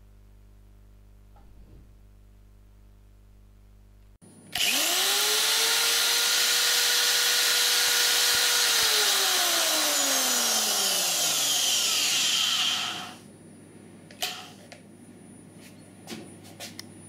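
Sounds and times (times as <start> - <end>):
electric drill spinning down: 4.5 - 13.2.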